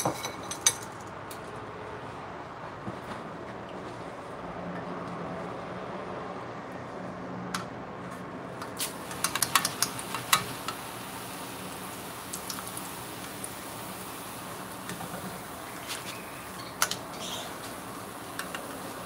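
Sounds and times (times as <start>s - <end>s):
hot oil sizzling: 8.8s - 19.0s.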